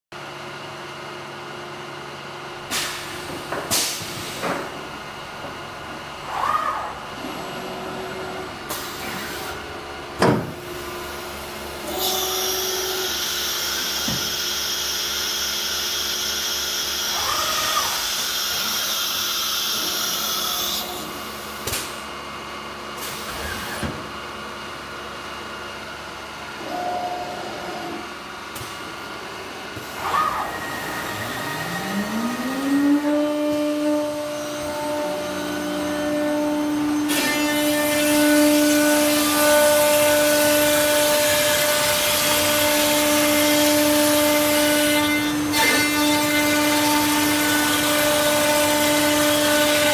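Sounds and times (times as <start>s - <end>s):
machine clunks and knocks: 10.2s - 10.6s
short machine whines: 11.8s - 21.4s, 26.6s - 28.1s, 29.7s - 38.2s
machine hum: 25.8s - 49.9s.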